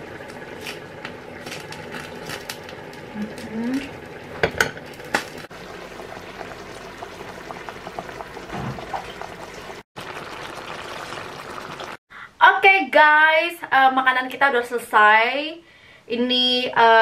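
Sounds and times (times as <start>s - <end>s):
soup simmering and bubbling: 0.0s - 12.0s.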